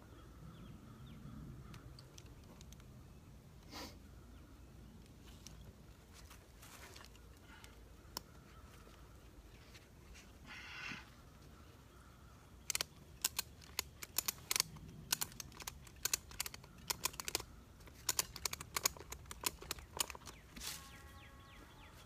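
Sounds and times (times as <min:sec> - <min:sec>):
ratchet buckle clicking: 0:12.6 - 0:20.4.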